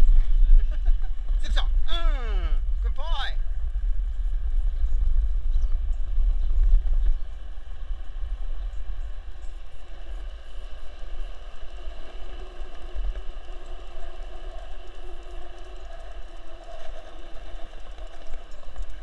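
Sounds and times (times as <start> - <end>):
skateboard wheels rolling on concrete: 0.0 - 19.0.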